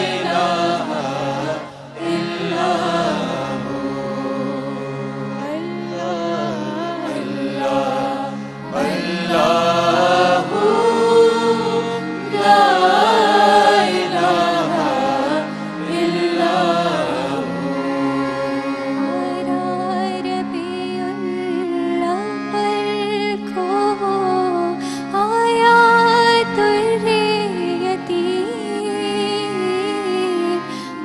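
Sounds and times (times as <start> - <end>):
lead voice singing: 0.0 - 20.6
vocal group drone: 0.0 - 24.7.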